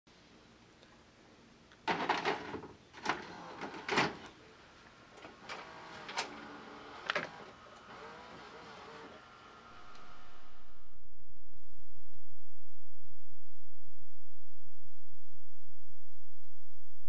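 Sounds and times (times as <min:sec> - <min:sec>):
motor whirring: 0:05.3 - 0:10.9.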